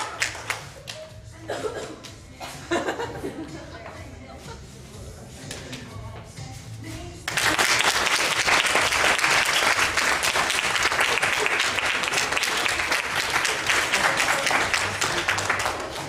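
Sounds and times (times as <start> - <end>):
audience applause: 7.3 - 16.0.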